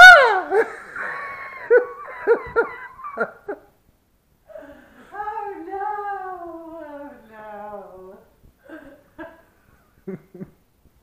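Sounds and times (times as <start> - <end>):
woman laughing: 0.0 - 3.7.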